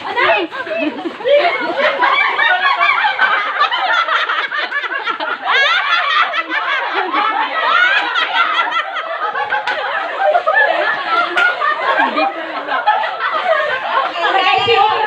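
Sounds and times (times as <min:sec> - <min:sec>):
group of people laughing: 0:00.0 - 0:15.0.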